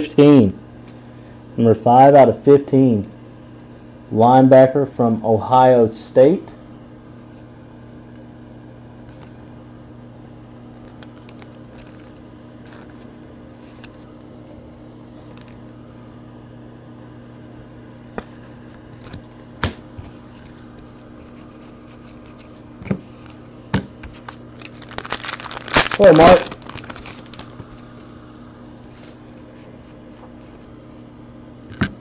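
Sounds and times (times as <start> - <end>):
steady low hum: 0.0 - 32.0
cards and plastic rustling: 10.6 - 14.1, 22.0 - 27.9.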